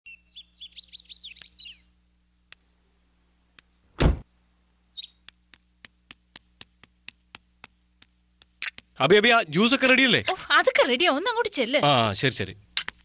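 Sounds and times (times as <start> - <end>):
bird chirps: 0.0 - 1.9, 4.9 - 5.3
car door shutting: 4.0 - 4.2.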